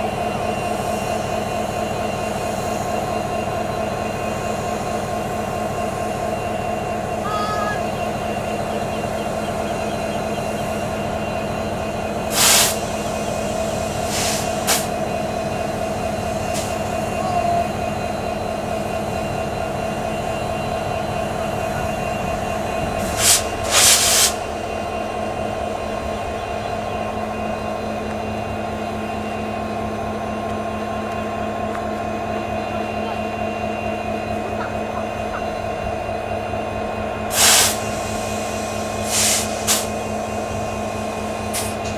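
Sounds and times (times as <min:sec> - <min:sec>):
locomotive engines idling: 0:00.0 - 0:41.9
short sharp hisses: 0:12.3 - 0:12.8, 0:14.1 - 0:14.9, 0:23.2 - 0:24.4, 0:37.4 - 0:37.8, 0:39.1 - 0:39.9.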